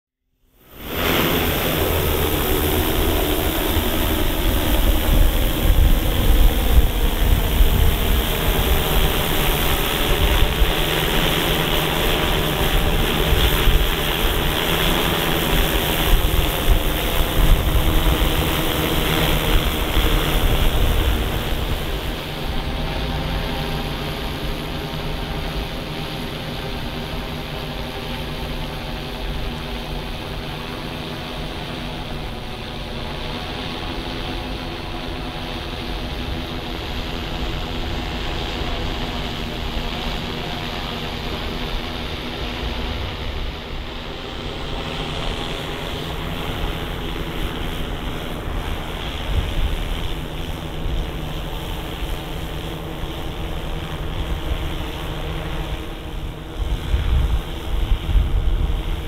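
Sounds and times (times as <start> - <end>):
drone propellers buzzing: 0.5 - 59.0
wind rumble on microphone: 0.7 - 30.6, 44.7 - 59.0.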